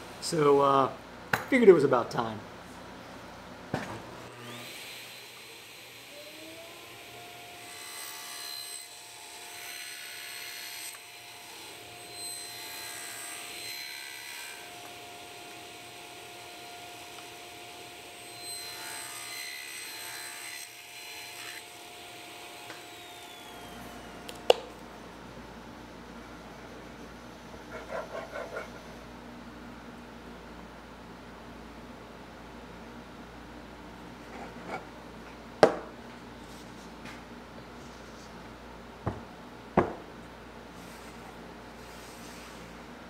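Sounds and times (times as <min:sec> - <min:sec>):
table saw motor whining: 0:04.2 - 0:24.3.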